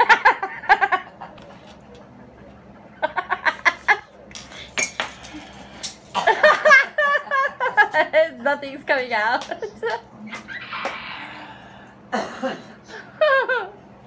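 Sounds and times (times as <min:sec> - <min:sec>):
people laughing: 0:00.0 - 0:01.5, 0:02.2 - 0:04.2, 0:06.2 - 0:08.4, 0:12.9 - 0:13.8.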